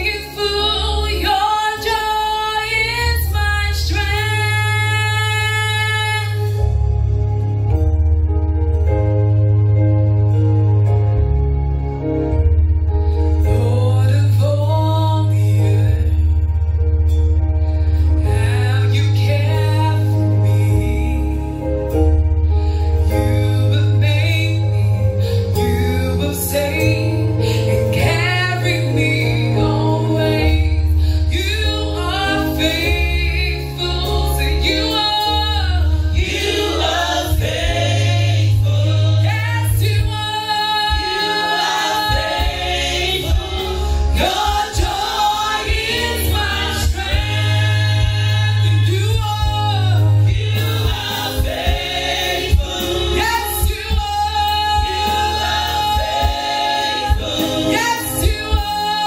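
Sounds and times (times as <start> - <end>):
instrumental accompaniment with bass: 0.0 - 59.0
women's gospel choir singing: 25.6 - 59.0.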